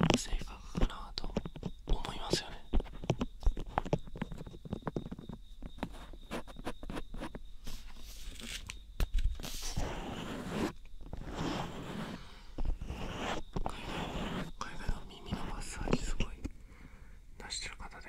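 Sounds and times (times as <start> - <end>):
rubbing swish on microphone: 9.4 - 14.6.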